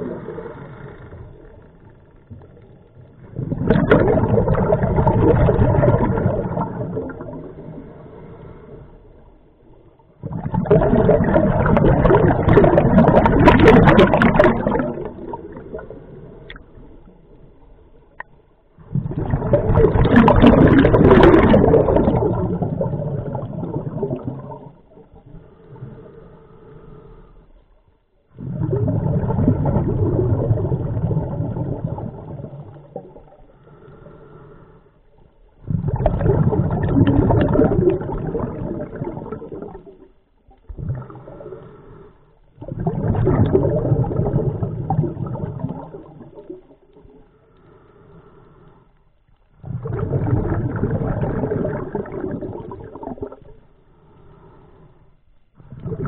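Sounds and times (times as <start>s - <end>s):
bubbles rushing: 3.2s - 7.8s, 10.2s - 16.6s, 18.8s - 25.1s, 28.4s - 33.4s, 35.6s - 40.1s, 42.6s - 47.2s, 49.6s - 53.6s, 55.8s - 56.0s
diver breathing through regulator: 25.4s - 27.8s, 33.2s - 35.2s, 40.8s - 42.5s, 47.2s - 49.2s, 53.7s - 56.0s.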